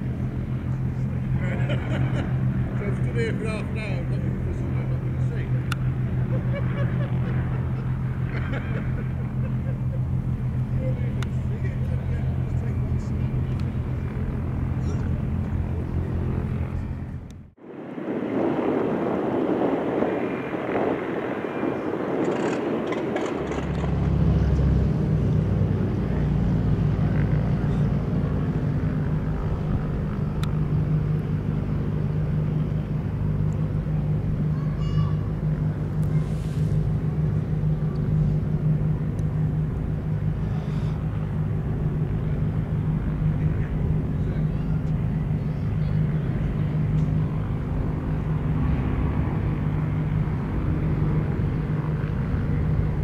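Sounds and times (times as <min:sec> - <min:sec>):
low rumble: 0:00.0 - 0:53.0
propeller aircraft engine drone: 0:00.0 - 0:53.0
wind on microphone: 0:04.2 - 0:53.0.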